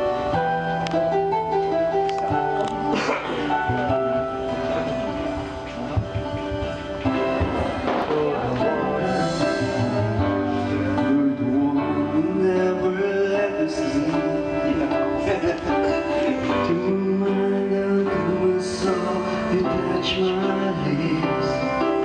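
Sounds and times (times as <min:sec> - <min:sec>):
pop ballad backing track: 0:00.0 - 0:22.0
man singing: 0:07.7 - 0:22.0.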